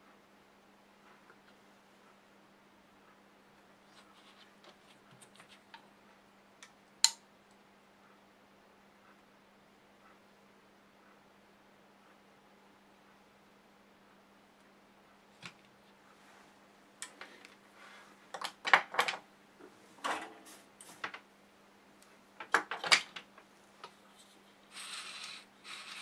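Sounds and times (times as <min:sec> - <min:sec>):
short scraping hiss: 0:24.7 - 0:26.0.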